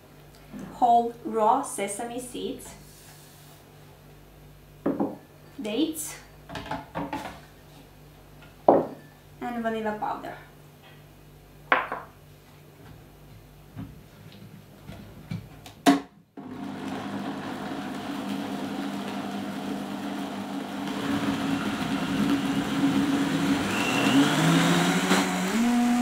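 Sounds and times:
blender whirring: 0:16.4 - 0:26.0.

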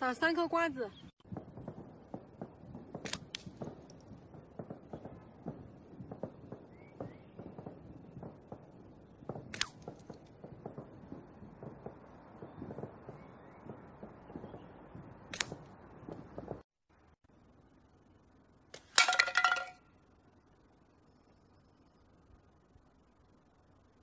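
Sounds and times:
slingshot pellets cracking: 0:03.0 - 0:04.1, 0:09.5 - 0:10.2, 0:15.3 - 0:15.7, 0:18.7 - 0:19.8.

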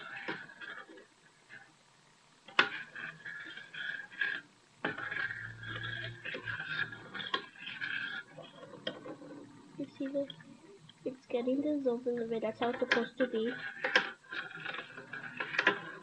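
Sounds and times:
metal spoon scraping a bowl: 0:02.6 - 0:09.5, 0:13.5 - 0:16.0.

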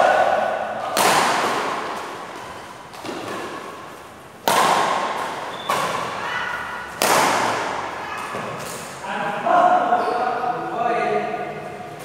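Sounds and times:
racket hitting shuttlecock: 0:00.3 - 0:09.0.

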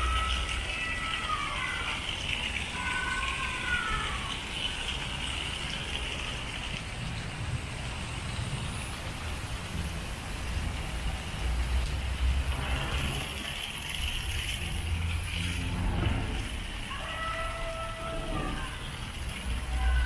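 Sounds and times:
fountain water splashing into pool: 0:00.0 - 0:20.0
low rumble: 0:14.8 - 0:16.9.

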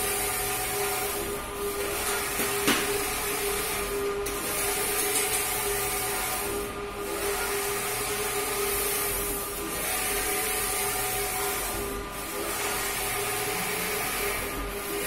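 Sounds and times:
printer humming and hissing: 0:00.0 - 0:15.0.

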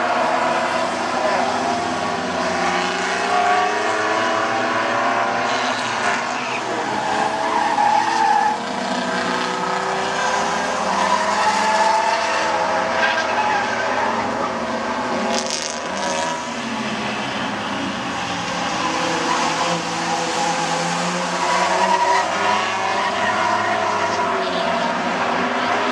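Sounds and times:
race car engines running hard: 0:00.0 - 0:25.9
tyre screech: 0:05.3 - 0:09.0.

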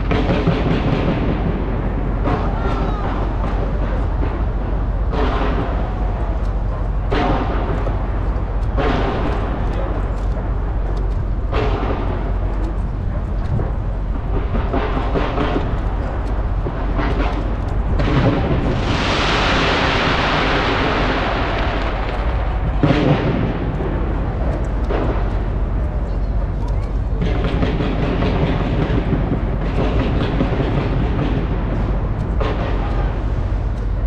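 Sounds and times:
fireworks bangs: 0:00.0 - 0:12.9, 0:13.5 - 0:34.0
low rumble: 0:00.0 - 0:34.0
fireworks crackling hiss: 0:18.0 - 0:25.3.

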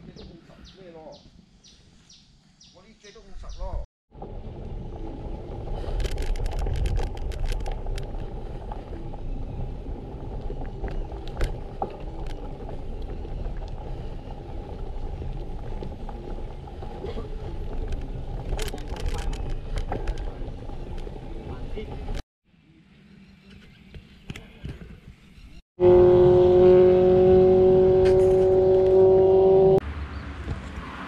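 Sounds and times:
road rumble from bike: 0:03.7 - 0:22.2, 0:25.4 - 0:31.0
clicks and rattles: 0:06.0 - 0:08.1, 0:17.8 - 0:21.1.

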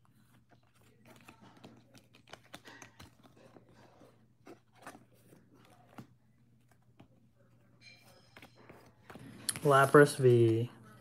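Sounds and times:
trading cards being shuffled: 0:00.1 - 0:07.1.

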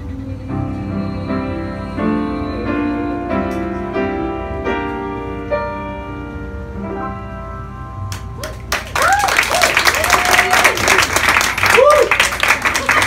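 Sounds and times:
piano sustained chords: 0:00.0 - 0:09.0.

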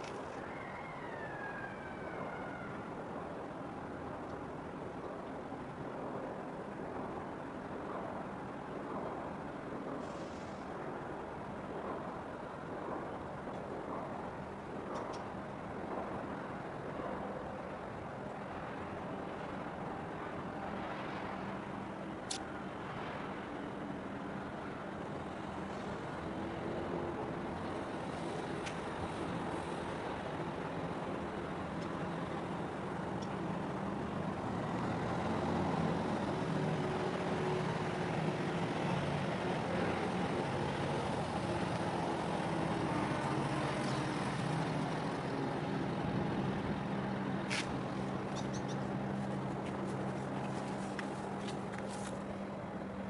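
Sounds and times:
ship diesel engines droning: 0:17.9 - 0:53.0.

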